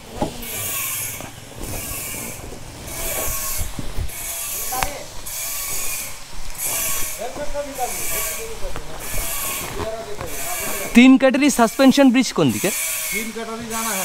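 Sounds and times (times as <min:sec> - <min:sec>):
cicadas buzzing: 0:00.0 - 0:14.0.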